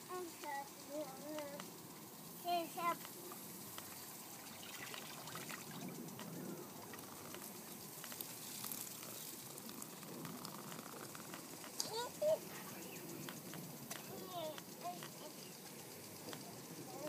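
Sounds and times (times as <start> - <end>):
running water trickling: 3.6 - 12.7.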